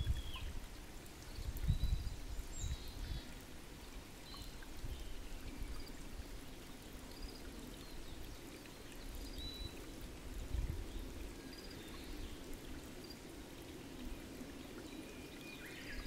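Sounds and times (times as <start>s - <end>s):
water trickling into a pool: 0.0s - 16.0s.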